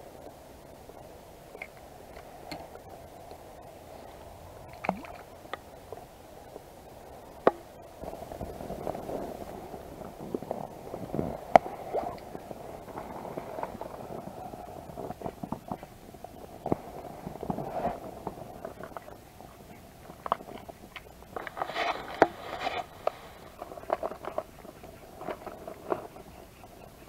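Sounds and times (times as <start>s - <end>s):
rustling of clothing and gear: 8.1s - 19.2s, 20.0s - 26.6s
fishing gear clicks and knocks: 20.1s - 26.3s.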